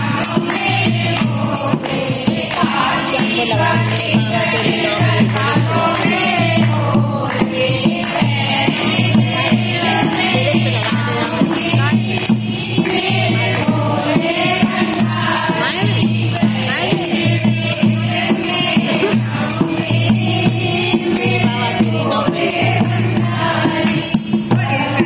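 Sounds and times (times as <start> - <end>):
hand clapping: 0.0 - 16.0, 23.7 - 24.1
rattling percussion: 0.0 - 25.0
women singing together: 0.0 - 25.0.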